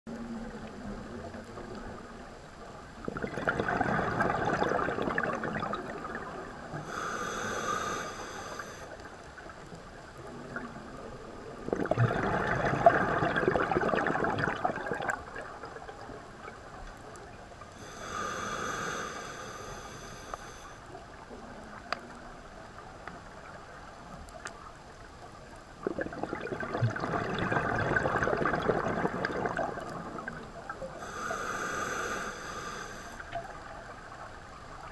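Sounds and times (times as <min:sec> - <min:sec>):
bubbling exhalations underwater: 0:03.0 - 0:07.0, 0:11.6 - 0:15.6, 0:25.8 - 0:30.4
hissing regulator inhalations: 0:06.8 - 0:09.0, 0:17.8 - 0:20.8, 0:31.0 - 0:33.2.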